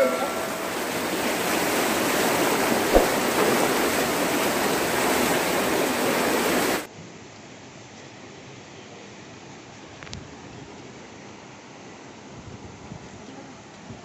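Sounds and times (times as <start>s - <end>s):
river rushing through gorge: 0.0s - 6.9s
brief thump: 2.9s - 3.8s.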